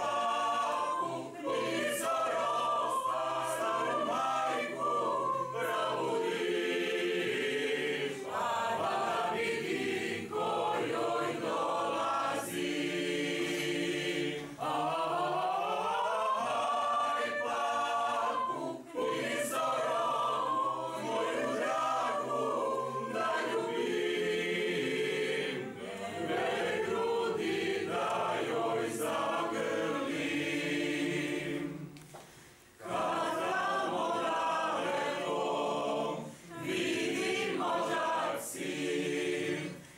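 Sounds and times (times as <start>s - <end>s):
mixed choir singing unaccompanied: 0.0s - 32.0s, 32.7s - 39.9s.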